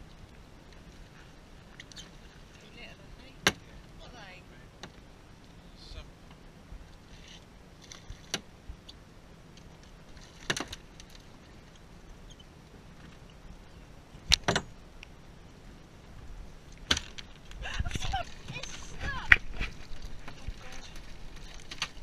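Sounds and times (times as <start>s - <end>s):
water: 0.0s - 22.0s
wind: 0.0s - 22.0s
knocks on small boat: 3.4s - 3.6s.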